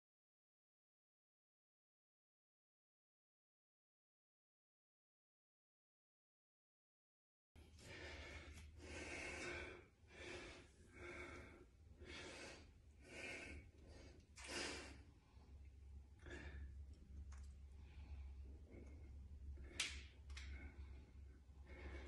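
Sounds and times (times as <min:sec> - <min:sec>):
faint low hum: 0:07.6 - 0:22.0
man breathing heavily: 0:07.6 - 0:22.0.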